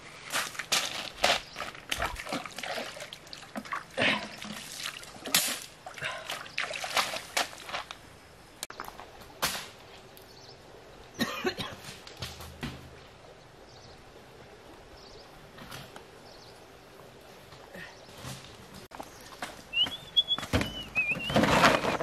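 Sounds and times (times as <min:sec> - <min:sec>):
splashing of shallow water: 0:01.7 - 0:07.9.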